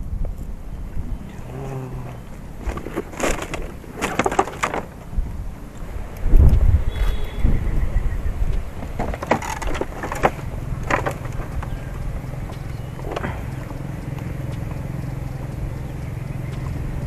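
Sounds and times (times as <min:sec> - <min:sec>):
steady low rumble: 0:00.0 - 0:17.0
plastic sack rustling: 0:01.6 - 0:05.0.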